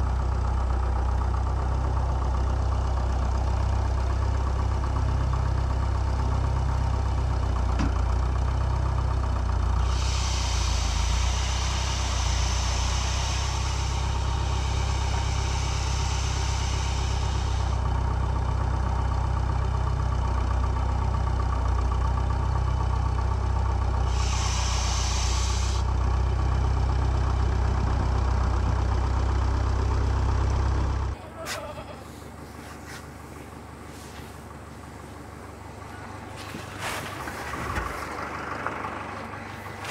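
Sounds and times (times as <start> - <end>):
tractor engine running: 0.0 - 39.9
pump hissing squeal: 9.8 - 17.8, 24.0 - 25.8.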